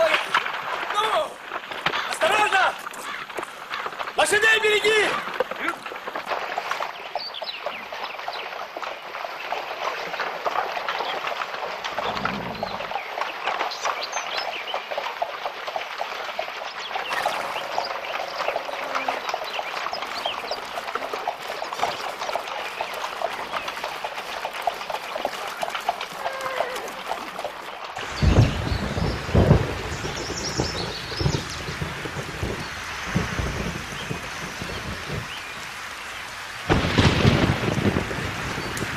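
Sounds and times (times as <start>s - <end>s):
boots splashing through water: 0.0s - 4.4s, 5.0s - 28.2s
hooves splashing through stream: 0.0s - 38.9s
steady rain: 0.0s - 38.9s
thunder rumbling: 11.7s - 14.0s, 17.1s - 38.9s.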